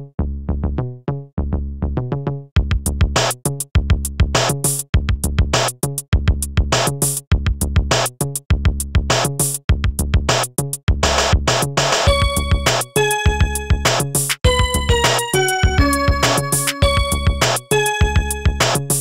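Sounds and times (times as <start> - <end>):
electronic tracker music: 12.0 - 19.0.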